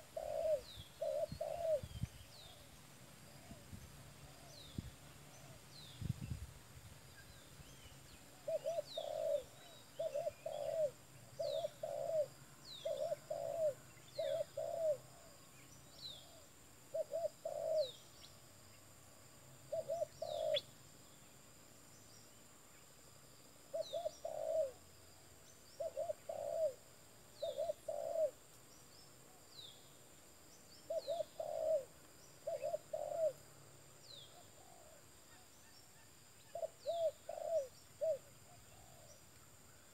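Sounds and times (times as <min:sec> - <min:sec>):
dove cooing: 0:00.0 - 0:02.5, 0:08.3 - 0:15.3, 0:16.2 - 0:18.0, 0:19.7 - 0:20.7, 0:23.7 - 0:24.8, 0:25.8 - 0:26.8, 0:27.4 - 0:28.4, 0:30.9 - 0:33.4, 0:34.3 - 0:35.1, 0:36.5 - 0:39.2.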